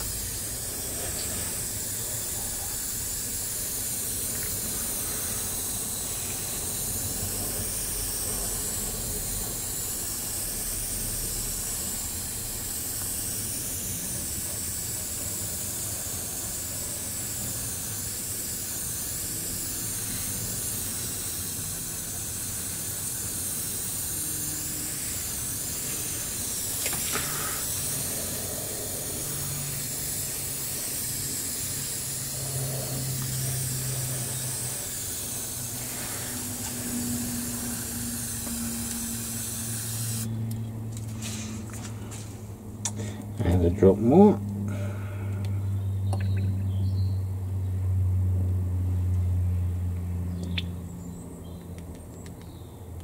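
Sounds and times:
airbrush spraying air hiss: 0:00.0 - 0:42.1.

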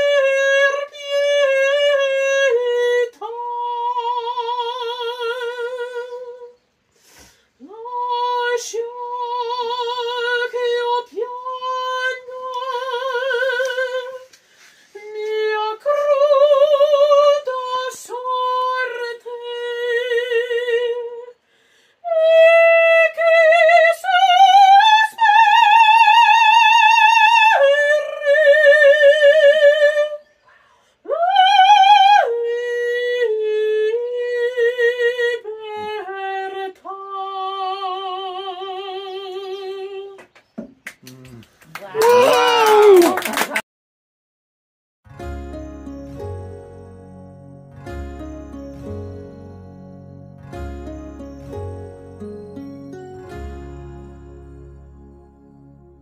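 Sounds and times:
woman singing opera: 0:00.0 - 0:06.6, 0:07.6 - 0:21.4, 0:22.0 - 0:30.3, 0:31.0 - 0:40.2
singer breathing: 0:06.9 - 0:07.6, 0:14.4 - 0:15.0, 0:21.4 - 0:22.0, 0:30.4 - 0:31.1.

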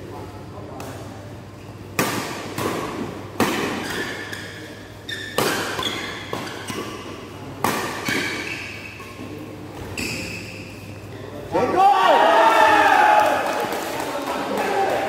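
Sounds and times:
racket hitting shuttlecock: 0:01.9 - 0:04.6, 0:05.2 - 0:08.8
shoes squeaking on court: 0:03.8 - 0:07.2, 0:07.9 - 0:11.0.

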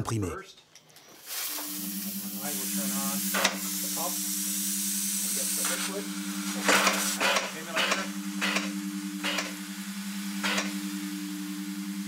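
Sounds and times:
mist nozzle hissing in spurts: 0:01.2 - 0:07.2
steady low hum: 0:01.5 - 0:12.0.

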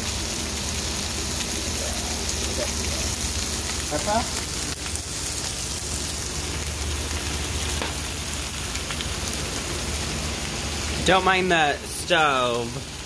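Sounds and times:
vegetables sizzling in a frying pan: 0:00.0 - 0:13.0.

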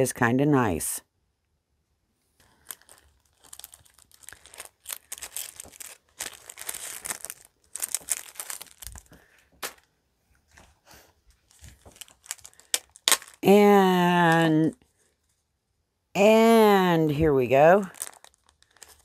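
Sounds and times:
plastic packaging crinkling: 0:02.4 - 0:09.9, 0:11.3 - 0:13.6, 0:17.2 - 0:19.0
sharp plastic crackle: 0:02.4 - 0:09.9, 0:11.4 - 0:13.6, 0:17.8 - 0:19.0.

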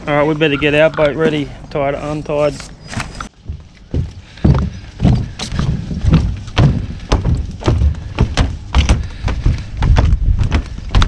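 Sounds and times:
footsteps on boat deck: 0:02.5 - 0:11.0
gear knocking and thumping: 0:03.4 - 0:11.0.

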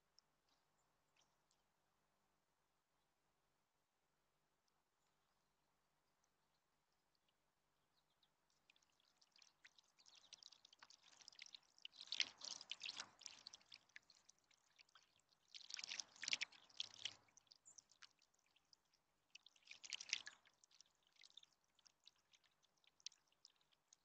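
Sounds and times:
fountain dripping and trickling: 0:08.1 - 0:24.0
bird splashing in water: 0:08.5 - 0:23.7.

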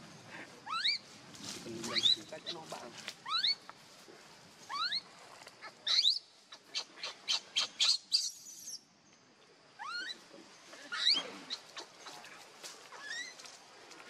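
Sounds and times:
baby monkey squealing: 0:00.6 - 0:01.0, 0:01.9 - 0:03.6, 0:04.7 - 0:05.1, 0:05.7 - 0:08.8, 0:09.8 - 0:10.2, 0:10.8 - 0:12.0, 0:12.9 - 0:13.4.

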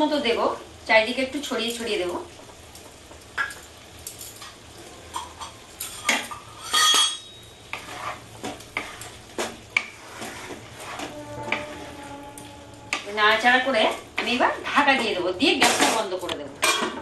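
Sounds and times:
spatula scraping metal pan: 0:05.9 - 0:15.9.

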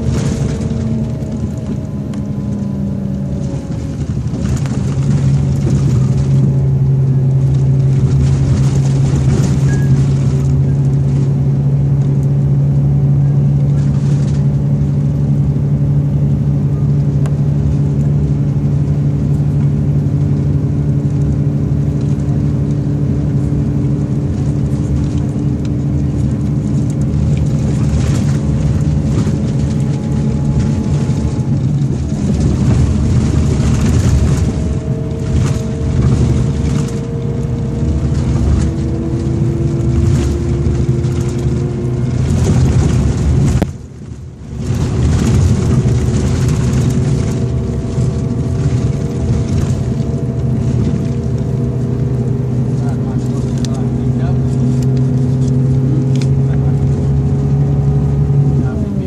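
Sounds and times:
coach engine droning: 0:00.0 - 0:59.0
tyre and road noise: 0:00.0 - 0:59.0.

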